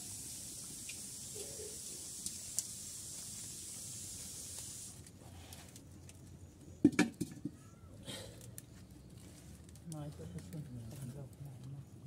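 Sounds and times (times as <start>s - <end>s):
steaming pot hissing: 0.0s - 5.0s.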